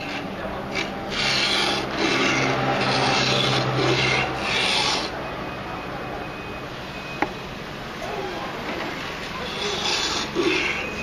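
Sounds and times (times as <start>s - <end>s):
blade scraping on whetstone: 0.0s - 5.1s, 9.4s - 11.0s.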